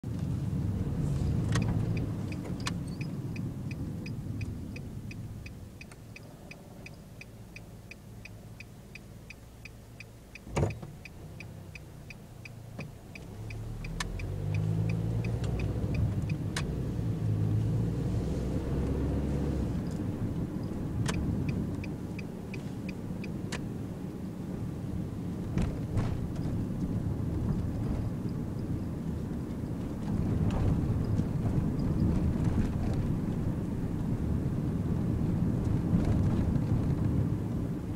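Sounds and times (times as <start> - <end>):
van engine and road noise: 0.0 - 37.9
turn signal ticking: 0.1 - 17.8, 18.6 - 25.3.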